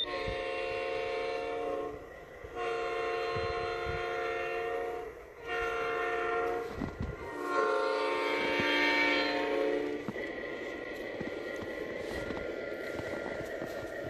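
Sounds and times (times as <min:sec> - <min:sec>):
locomotive air horn blasts: 0:00.0 - 0:10.2.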